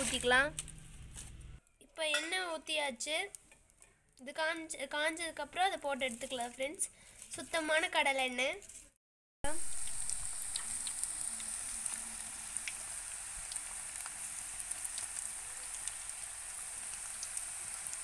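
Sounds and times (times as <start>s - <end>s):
dough frying in hot oil: 9.4s - 18.0s.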